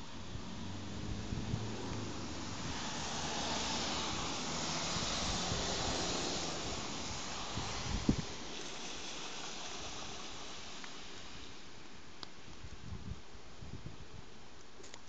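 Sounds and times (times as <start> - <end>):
bicycle tyres hissing through water: 0.0 - 12.5.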